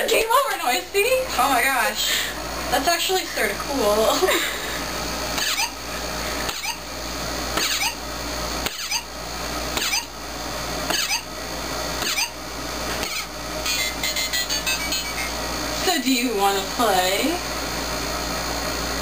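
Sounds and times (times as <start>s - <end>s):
electronic chirp: 13.1s - 15.3s.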